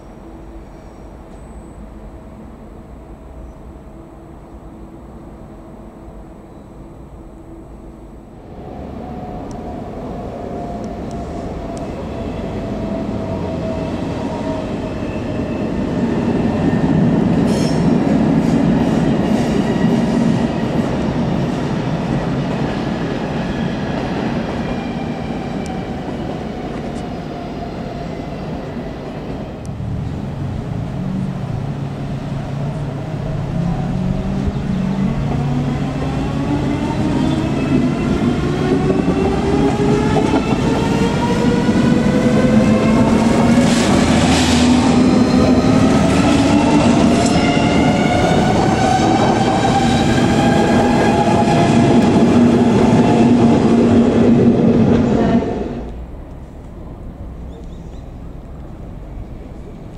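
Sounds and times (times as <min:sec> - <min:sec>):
traction whine rising: 0:29.4 - 0:56.1.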